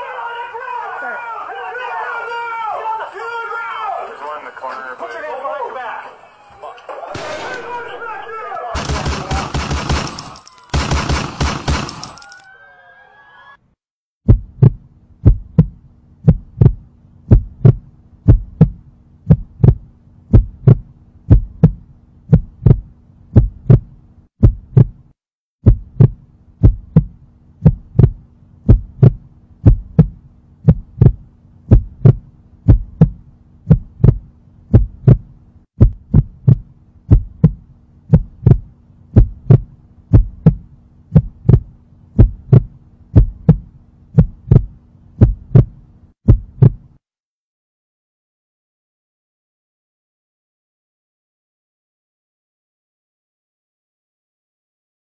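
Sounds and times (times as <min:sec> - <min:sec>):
heartbeat thumps: 0:14.2 - 0:46.9
steady low hum: 0:25.7 - 0:46.0.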